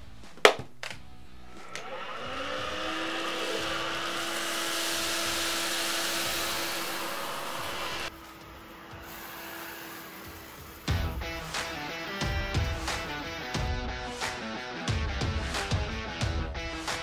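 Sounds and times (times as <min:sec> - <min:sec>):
vacuum motor whining: 0:01.4 - 0:13.4.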